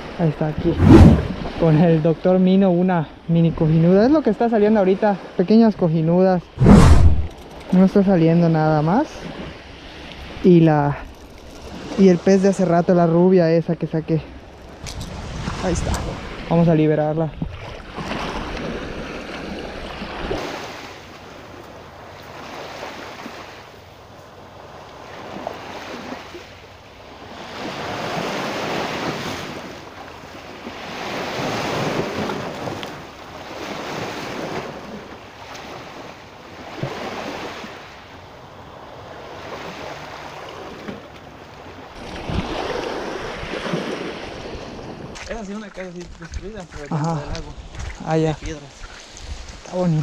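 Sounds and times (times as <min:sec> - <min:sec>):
wind on microphone: 0:00.5 - 0:01.6, 0:06.6 - 0:07.5, 0:14.8 - 0:16.6, 0:42.0 - 0:50.0.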